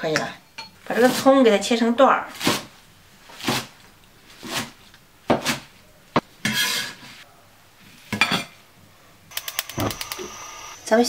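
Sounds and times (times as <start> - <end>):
sharp clicks: 9.3 - 10.4.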